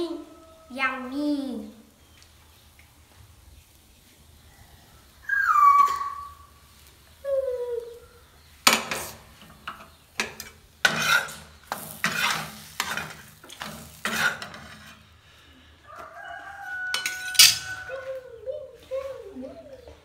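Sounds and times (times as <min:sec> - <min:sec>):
spatula scraping iron griddle: 0:08.7 - 0:15.2, 0:16.9 - 0:17.9.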